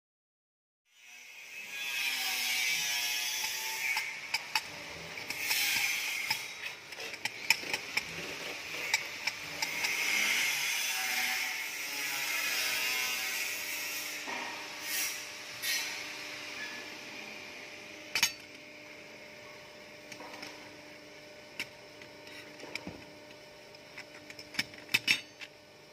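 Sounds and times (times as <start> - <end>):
metal bars sliding and scraping: 1.7 - 16.9, 18.1 - 18.6, 23.8 - 25.5.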